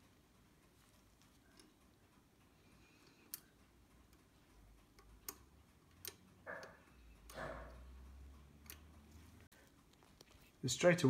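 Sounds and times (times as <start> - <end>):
soft rustles: 9.1 - 10.7.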